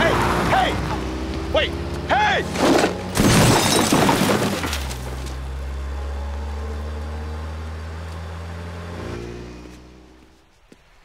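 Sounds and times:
box crashing on pavement: 0:02.6 - 0:05.3
car engine driving away: 0:04.6 - 0:10.5.

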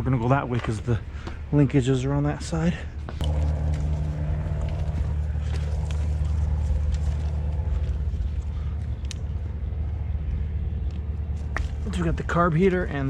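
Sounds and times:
engine droning: 0:03.1 - 0:13.0.

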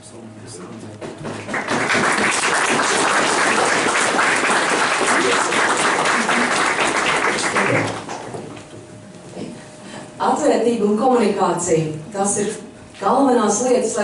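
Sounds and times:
audience applauding: 0:01.2 - 0:08.6.

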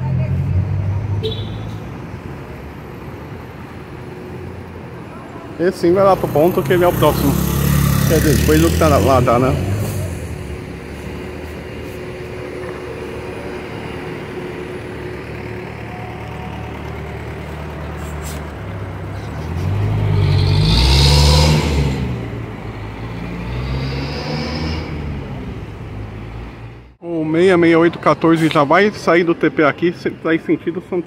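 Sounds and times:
street traffic: 0:00.0 - 0:31.0
large vehicle passing close: 0:05.8 - 0:27.0.

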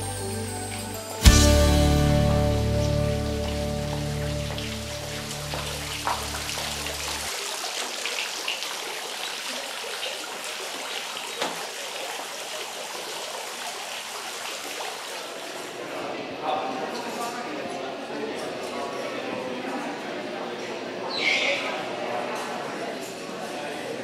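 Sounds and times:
low sustained music tones: 0:00.0 - 0:07.3
fountain splashing: 0:00.0 - 0:15.9.

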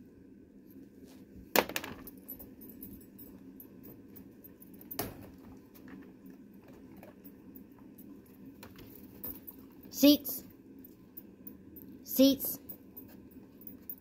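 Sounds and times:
metallic clinking and jingling: 0:02.0 - 0:05.5, 0:06.5 - 0:09.9, 0:10.8 - 0:14.0.

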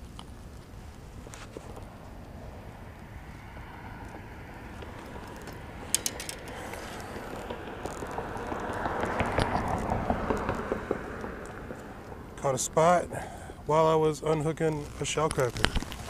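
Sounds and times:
fishing reel gears clicking: 0:05.4 - 0:08.6.

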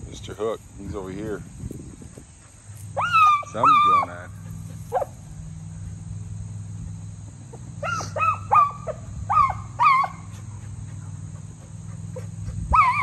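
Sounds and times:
dogs yelping and barking: 0:02.2 - 0:05.2, 0:07.4 - 0:13.0.

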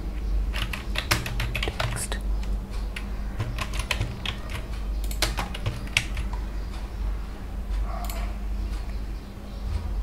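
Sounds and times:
low electrical hum: 0:00.0 - 0:10.0
keyboard keystrokes: 0:00.5 - 0:06.4.

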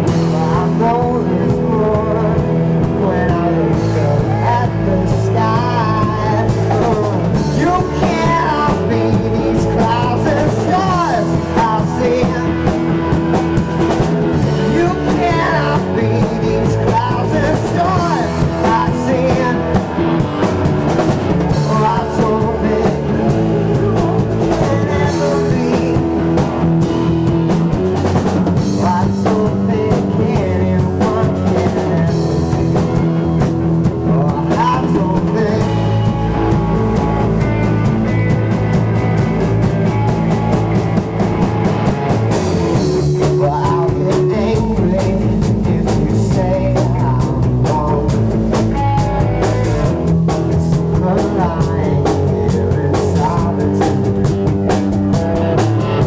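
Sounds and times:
person singing into microphone: 0:00.0 - 0:13.1, 0:14.3 - 0:20.2, 0:21.4 - 0:26.5, 0:28.6 - 0:37.6, 0:42.8 - 0:48.3, 0:50.3 - 0:54.0
drums: 0:00.0 - 0:56.0
electric guitar: 0:00.0 - 0:56.0.

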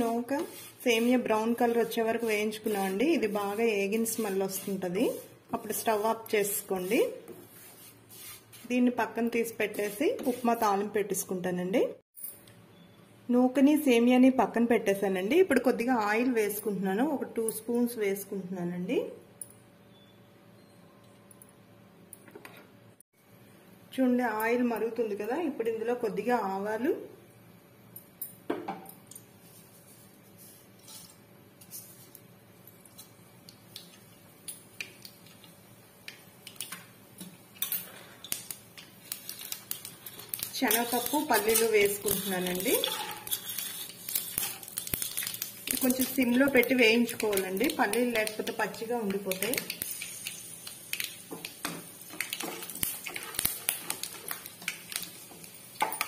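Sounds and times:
wooden spatula stirring: 0:00.0 - 0:08.8
mustard seeds popping in hot oil: 0:33.4 - 0:56.0.

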